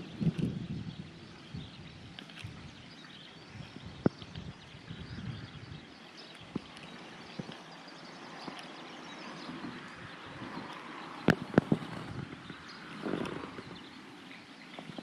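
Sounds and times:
soft clicks: 2.1 - 2.6, 6.2 - 7.8, 8.4 - 8.8.

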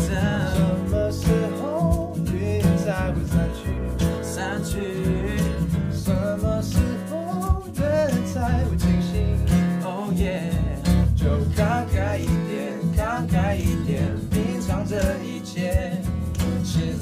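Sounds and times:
bass guitar: 0.0 - 17.0
hand shaker: 0.0 - 17.0
strummed acoustic guitar: 0.0 - 17.0
voices singing in harmony: 11.3 - 17.0.

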